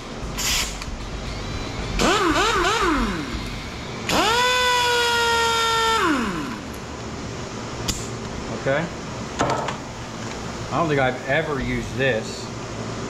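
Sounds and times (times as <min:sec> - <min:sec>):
air hiss: 0:00.3 - 0:00.9
pneumatic air tool whining: 0:00.3 - 0:00.9, 0:02.0 - 0:06.7.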